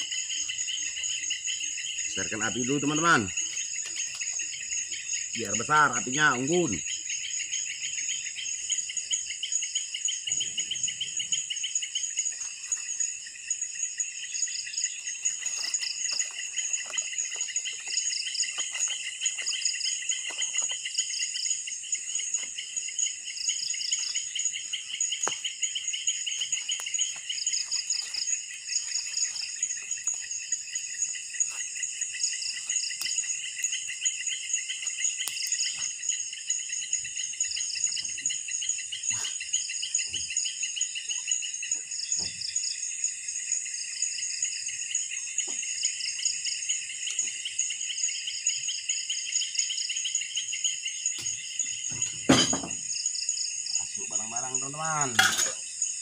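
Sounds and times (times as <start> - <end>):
campfire crackling: 0.0 - 6.8, 11.9 - 36.9
insect chorus trilling: 0.0 - 56.0.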